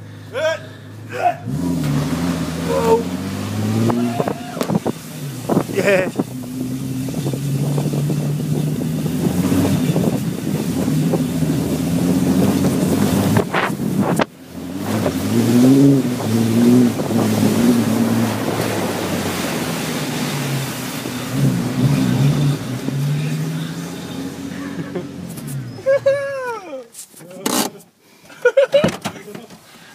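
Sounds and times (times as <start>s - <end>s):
vehicle engine running: 0.0s - 26.1s
wind buffeting microphone: 3.7s - 14.3s, 16.0s - 22.0s.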